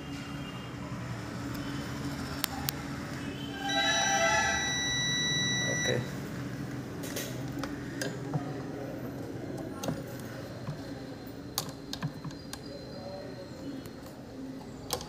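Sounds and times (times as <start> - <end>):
multimeter continuity beep: 3.7 - 6.2.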